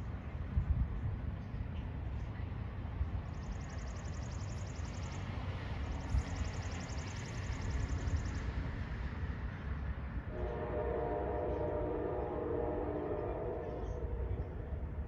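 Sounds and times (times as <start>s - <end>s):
train horn chord: 10.3s - 14.7s.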